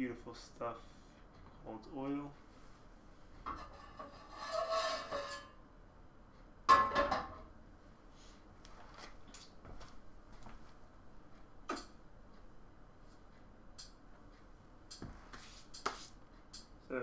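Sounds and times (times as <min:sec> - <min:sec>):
frying pan scraping on grate: 0:03.5 - 0:05.6.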